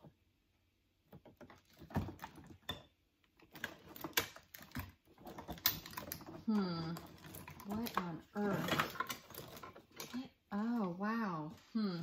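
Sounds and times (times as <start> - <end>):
plastic lights clattering and rustling: 1.1 - 10.8.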